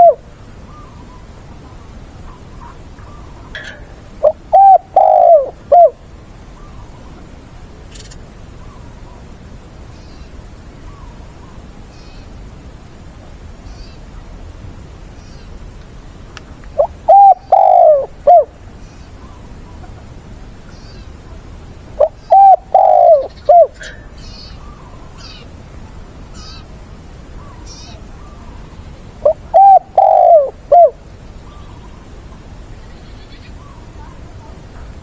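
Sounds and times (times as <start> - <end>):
dove cooing: 0.0 - 1.0, 2.3 - 6.8, 16.8 - 18.6, 22.0 - 25.4, 29.2 - 31.7.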